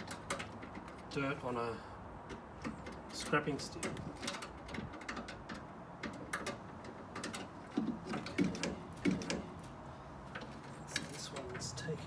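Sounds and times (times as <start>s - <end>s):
metal parts clicking and rattling: 0.0s - 1.2s, 2.3s - 9.7s, 10.3s - 11.8s
heavy scraping knocks: 2.3s - 9.6s.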